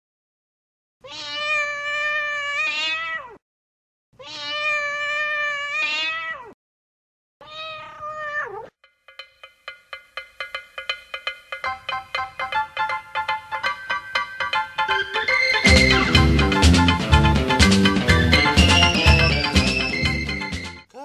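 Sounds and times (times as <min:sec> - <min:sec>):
cat yowling meows: 0:01.0 - 0:03.4, 0:04.2 - 0:06.6, 0:07.4 - 0:08.7
plinking xylophone-like music: 0:08.9 - 0:16.9.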